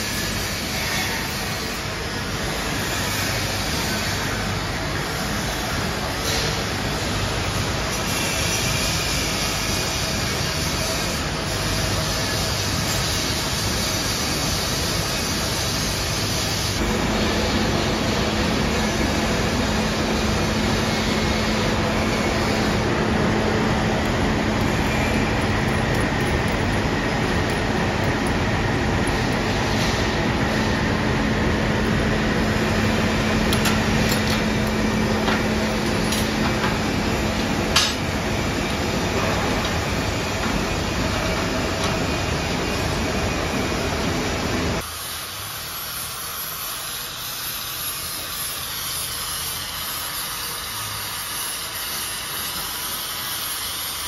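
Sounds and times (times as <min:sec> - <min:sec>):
workshop machinery noise: 0:00.0 - 0:54.0.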